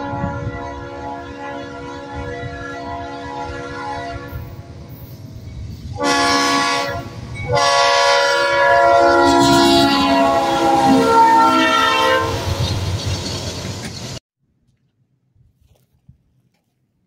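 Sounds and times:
locomotive air horn: 0.0s - 4.8s, 5.9s - 12.6s.

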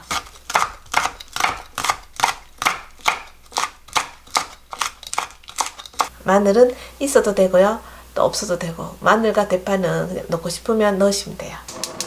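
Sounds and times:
knife chopping on wooden board: 0.0s - 6.1s.

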